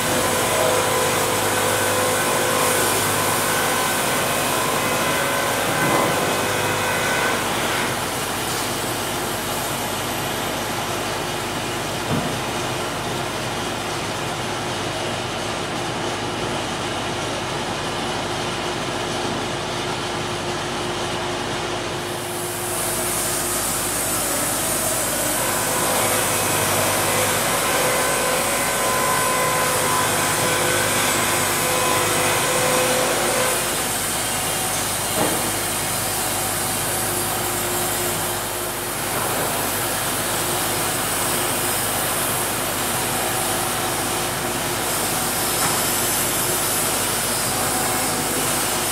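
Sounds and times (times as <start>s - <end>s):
high hiss of sawing: 0.0s - 8.8s, 22.2s - 48.9s
band sawmill running: 0.0s - 48.9s.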